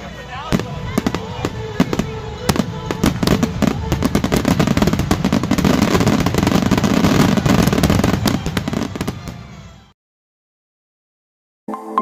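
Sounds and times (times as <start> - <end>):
fireworks bangs and crackles: 0.0 - 9.9.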